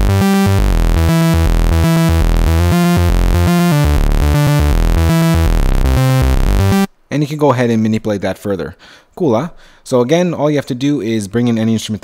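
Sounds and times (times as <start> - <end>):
synth arpeggio: 0.0 - 6.9.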